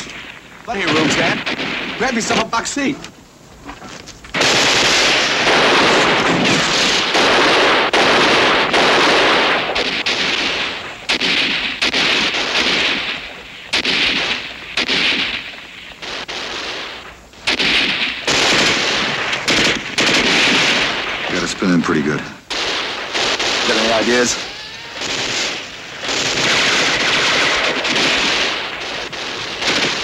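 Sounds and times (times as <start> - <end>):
rapid gunshots: 0.0 - 2.6, 4.3 - 30.0
automatic gunfire bursts: 4.3 - 21.8, 22.5 - 30.0.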